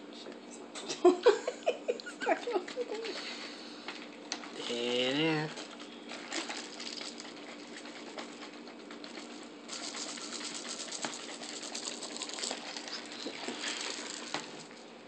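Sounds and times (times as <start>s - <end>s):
candies rattling in shaken bottle: 5.5s - 14.8s.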